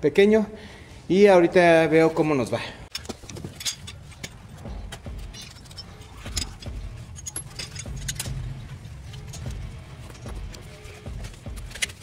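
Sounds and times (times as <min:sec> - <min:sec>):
metallic clicks and clinks: 0:02.9 - 0:12.0.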